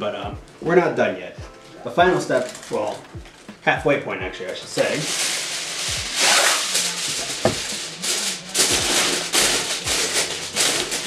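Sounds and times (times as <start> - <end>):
aluminum foil crinkling: 1.8 - 3.7, 4.4 - 11.0.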